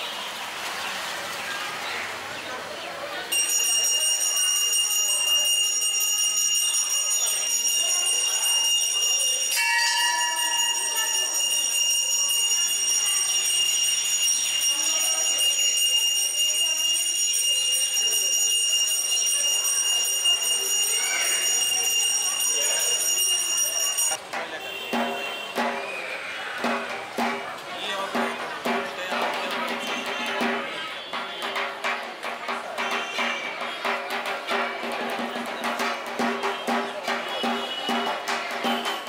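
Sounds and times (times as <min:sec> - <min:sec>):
voices murmuring: 0:00.0 - 0:39.0
high shimmering bell ring: 0:03.3 - 0:24.2.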